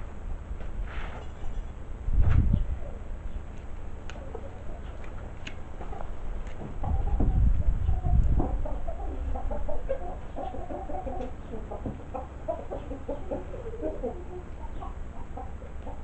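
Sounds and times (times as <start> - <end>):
wind rumble on microphone: 2.0 - 3.0, 6.4 - 10.1
chickens clucking: 2.5 - 16.0.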